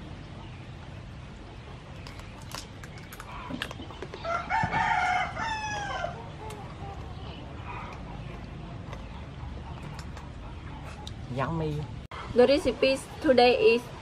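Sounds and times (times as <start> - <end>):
rooster crowing: 4.2 - 6.3.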